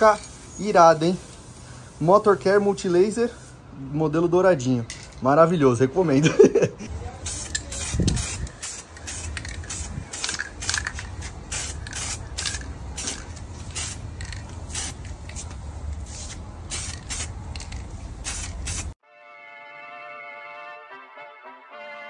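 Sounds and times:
aerosol spray hissing: 0:00.0 - 0:03.6, 0:07.1 - 0:10.8, 0:11.5 - 0:15.0, 0:16.0 - 0:17.4, 0:18.2 - 0:19.0.

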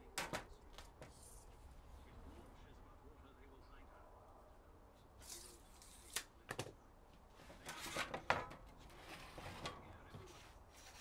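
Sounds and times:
tools scraping and rattling: 0:07.3 - 0:11.0.

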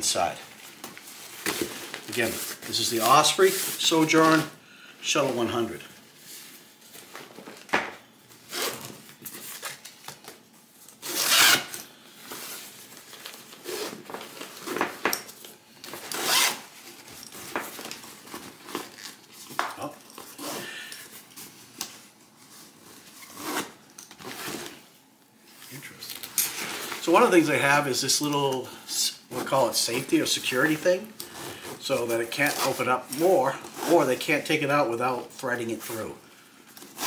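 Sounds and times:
zipper pulls rasping: 0:11.0 - 0:11.7, 0:16.1 - 0:16.6.

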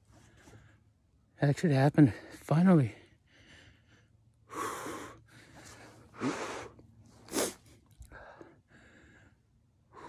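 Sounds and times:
man breathing hard: 0:03.0 - 0:10.0.

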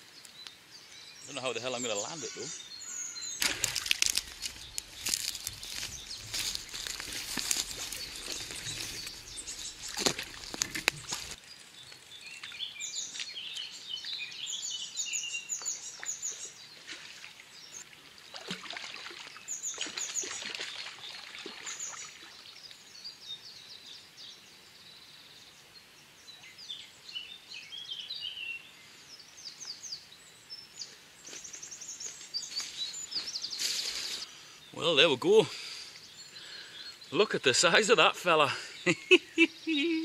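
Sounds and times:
songbirds chirping and trilling: 0:00.0 - 0:40.0
faint water splashes: 0:03.4 - 0:11.4, 0:16.0 - 0:22.8.

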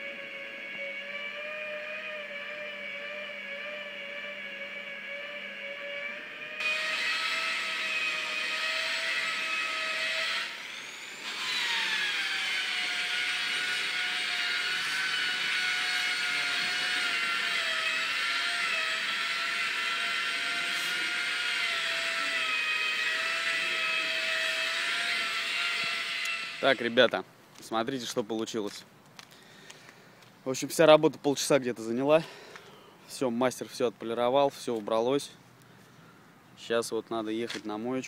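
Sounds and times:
electric car polisher whine: 0:00.0 - 0:27.0.

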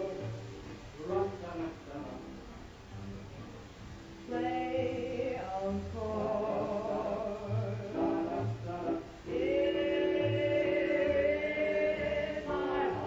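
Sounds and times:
voices singing in harmony: 0:04.3 - 0:13.0.

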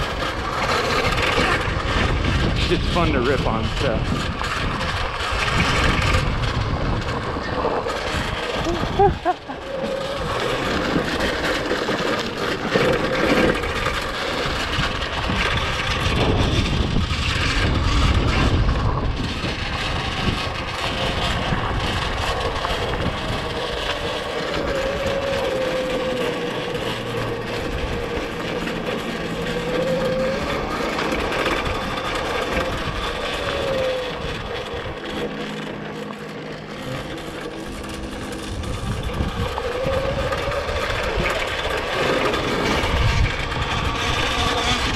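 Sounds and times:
electric motor whining: 0:00.0 - 0:44.9
tyre noise on dirt: 0:00.0 - 0:44.9.

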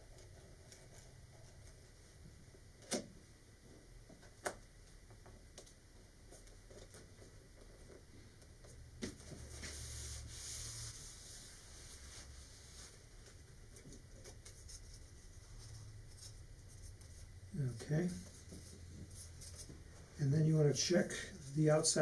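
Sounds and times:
paper towel rubbing and rustling: 0:09.4 - 0:13.4.

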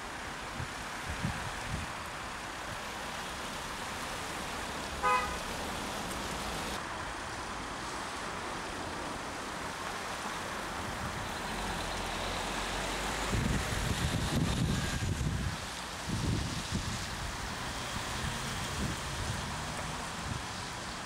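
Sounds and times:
background traffic noise: 0:00.0 - 0:21.0
car horn toot: 0:05.0 - 0:05.5
wind buffeting microphone: 0:13.1 - 0:20.6.

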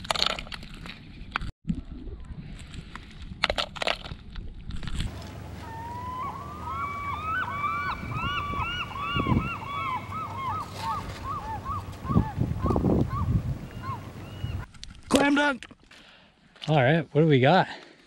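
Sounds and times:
geese honking: 0:05.1 - 0:14.6.

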